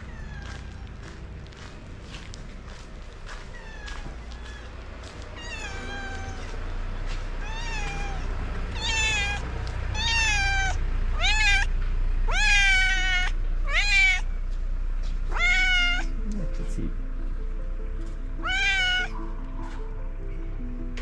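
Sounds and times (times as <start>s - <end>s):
cat meowing: 0.0s - 1.1s, 3.2s - 6.6s, 7.4s - 11.7s, 12.3s - 14.3s, 15.3s - 16.2s, 18.4s - 19.3s.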